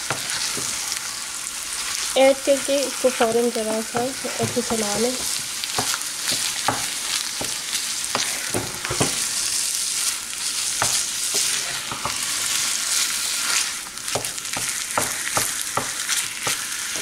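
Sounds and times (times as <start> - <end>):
meat sizzling in a frying pan: 0.0 - 17.0
wooden spoon scraping a pan: 0.1 - 0.9, 3.1 - 9.5, 10.8 - 13.8.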